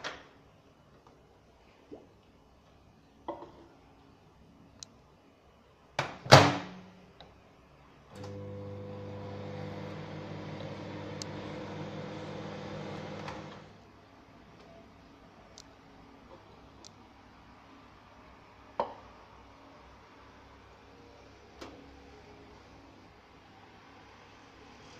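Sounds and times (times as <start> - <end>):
microwave humming: 8.2 - 13.8
microwave timer click: 10.5 - 11.5.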